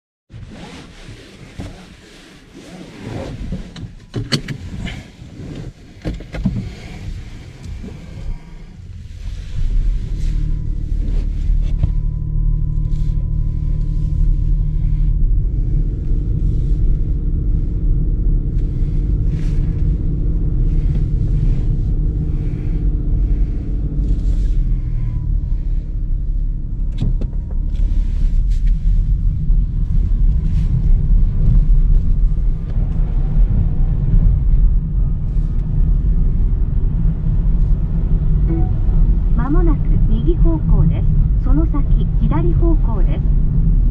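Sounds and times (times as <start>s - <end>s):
road and tyre rumble: 0.3s - 43.9s
faint hum: 38.4s - 43.9s.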